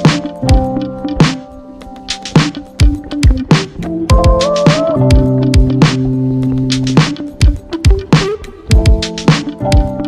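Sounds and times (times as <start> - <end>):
music with strong beat: 0.0 - 10.0.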